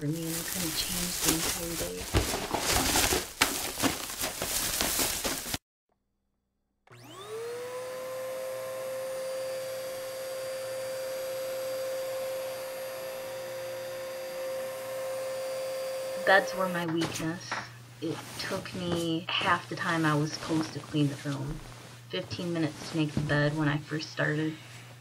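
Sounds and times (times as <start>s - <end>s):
crackling rustling noise: 0.0s - 5.6s, 18.0s - 23.9s
vacuum cleaner motor whining: 6.9s - 17.3s.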